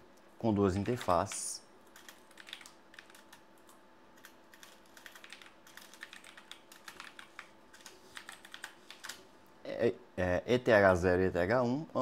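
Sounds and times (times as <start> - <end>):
low steady hum: 0.0 - 12.0
keyboard typing clicks: 1.9 - 9.2.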